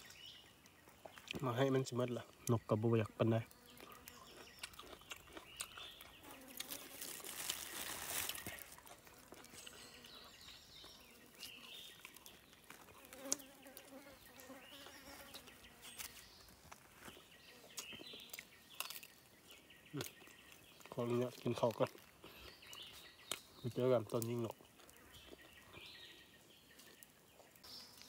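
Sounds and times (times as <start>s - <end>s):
fly buzzing: 6.2s - 7.3s, 13.0s - 16.3s.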